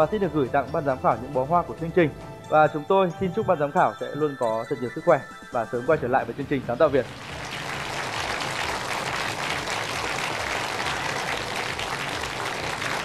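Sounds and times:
audience clapping: 0:07.0 - 0:13.0.

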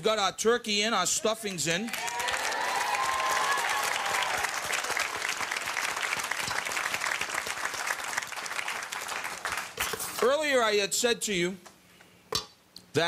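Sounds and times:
audience applauding: 0:01.9 - 0:09.8.

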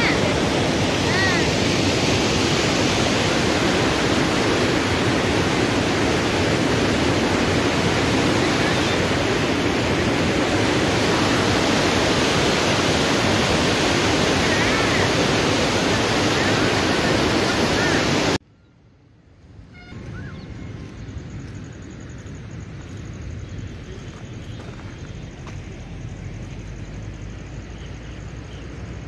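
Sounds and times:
water rushing: 0:00.0 - 0:18.4.

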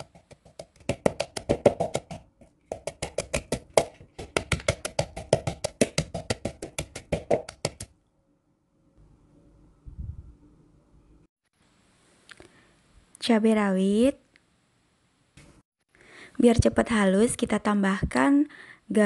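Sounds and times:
pestle pounding in plastic bowl: 0:00.0 - 0:07.9.

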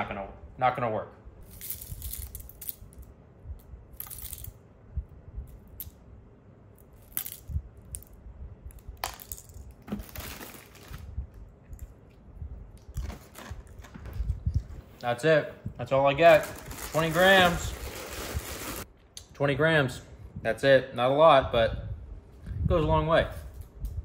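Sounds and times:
cereal flakes crackling: 0:01.4 - 0:03.0, 0:03.9 - 0:04.5, 0:16.2 - 0:18.9.

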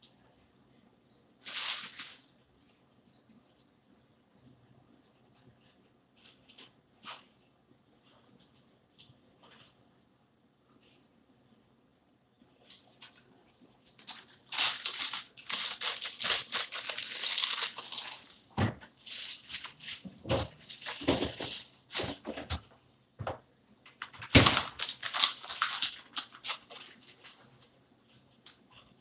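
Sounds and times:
plastic packaging crinkling: 0:01.4 - 0:02.3, 0:12.7 - 0:22.3, 0:23.9 - 0:27.6.

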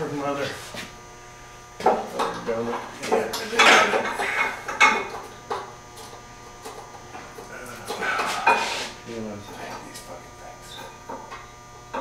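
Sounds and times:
person muttering: 0:07.5 - 0:08.8.

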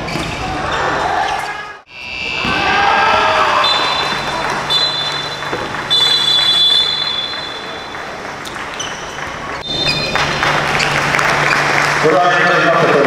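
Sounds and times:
sports hall noise: 0:00.0 - 0:13.0
referee's whistle blasts: 0:01.9 - 0:07.9.

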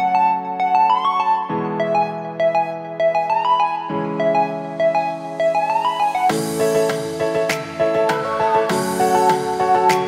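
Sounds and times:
keyboard melody over chords: 0:00.0 - 0:10.0.

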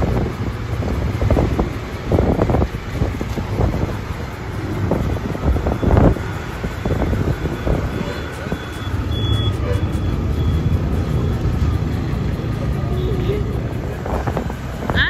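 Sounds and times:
road noise rumble: 0:00.0 - 0:15.0
wind buffeting microphone: 0:00.0 - 0:15.0.

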